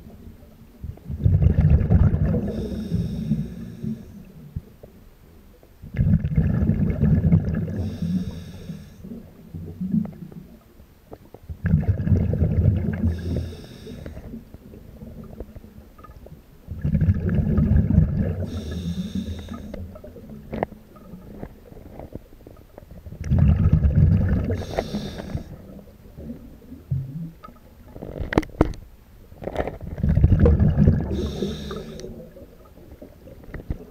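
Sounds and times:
diver exhaling bubbles underwater: 1.1 - 4.1, 5.9 - 10.6, 11.6 - 14.4, 16.7 - 20.4, 23.2 - 27.3, 29.8 - 33.9
air hissing through regulator: 2.4 - 4.2, 7.7 - 9.0, 13.0 - 14.3, 18.4 - 19.8, 24.5 - 25.6, 31.1 - 32.2.

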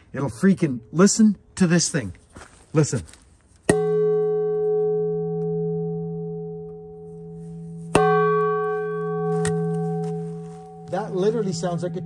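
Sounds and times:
deep bell-like ringing: 3.7 - 12.0
metal bowl struck with wood: 3.7 - 12.0.

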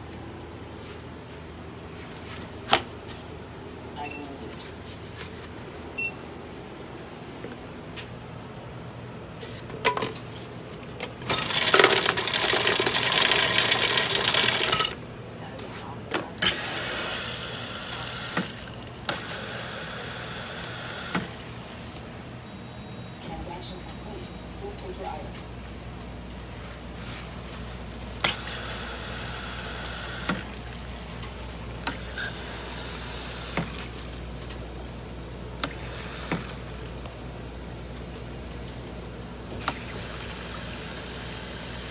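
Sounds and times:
ice clattering into a cup: 11.3 - 15.0
steady low hum: 14.6 - 41.9.

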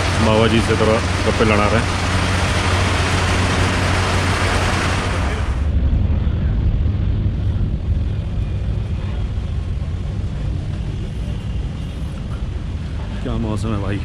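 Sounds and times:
heavy rain on a metal roof: 0.0 - 5.7
steady low rumble: 0.0 - 14.0.

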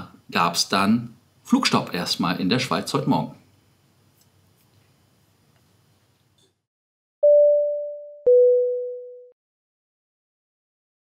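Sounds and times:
two-note electronic chime: 7.2 - 9.3.

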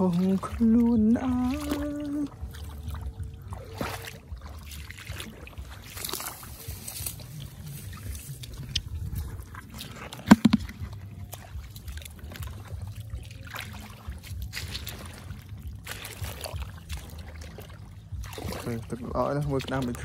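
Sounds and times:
muddy water sloshing: 0.0 - 20.0
sharp knocks: 10.3 - 10.8.

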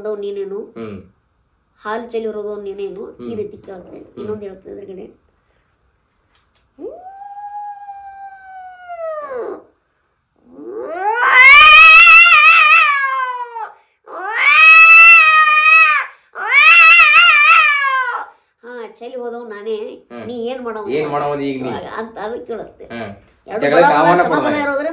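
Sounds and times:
person mimicking cat yowls: 6.8 - 9.7, 10.4 - 18.4.

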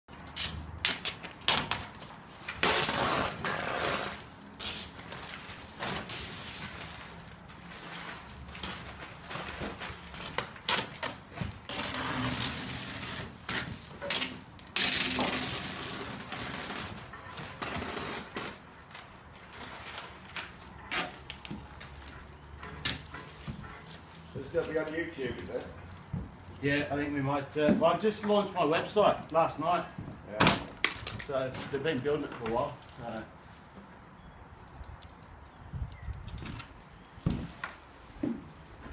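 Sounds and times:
plastic tarp rustling: 0.3 - 22.2.

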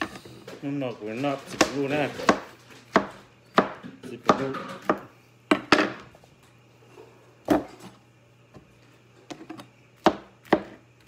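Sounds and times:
knife chopping on cutting board: 1.5 - 6.1, 7.4 - 7.9, 9.3 - 10.8.

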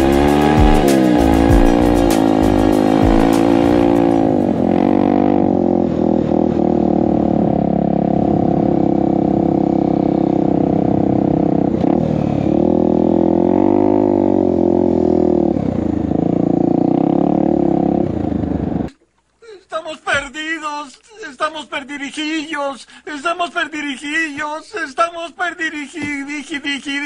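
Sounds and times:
motorcycle engine running: 0.0 - 18.9.

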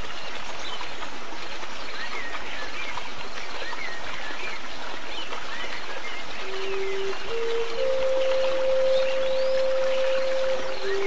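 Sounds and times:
small birds chirping: 0.0 - 11.0
stream rushing: 0.0 - 11.0.

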